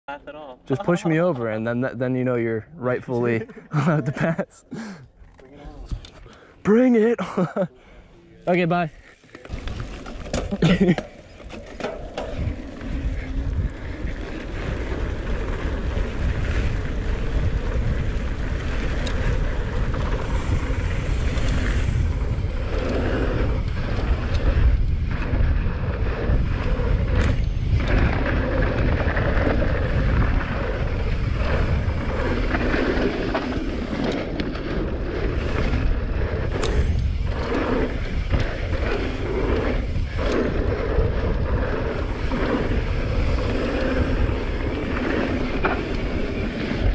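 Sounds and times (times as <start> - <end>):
tyres rolling on dirt trail: 8.4 - 46.9
wind buffeting microphone: 11.8 - 46.9.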